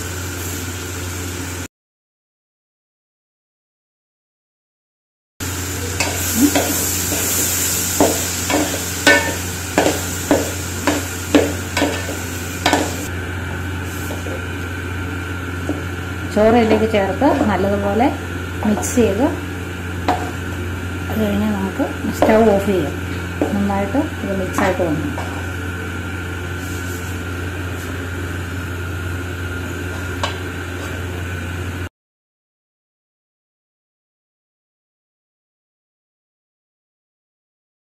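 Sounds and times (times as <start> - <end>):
steady low hum: 5.4 - 31.9
hiss: 5.6 - 13.1.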